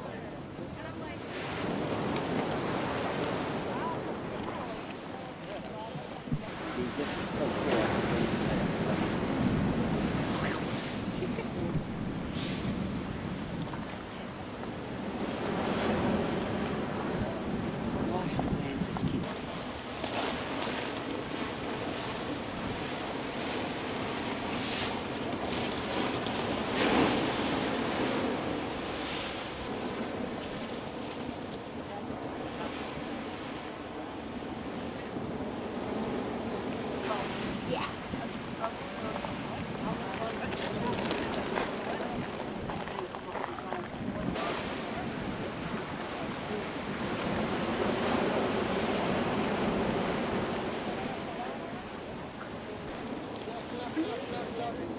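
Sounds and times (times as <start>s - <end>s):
surf breaking on rocks: 0.0s - 54.9s
wind buffeting microphone: 0.0s - 54.9s.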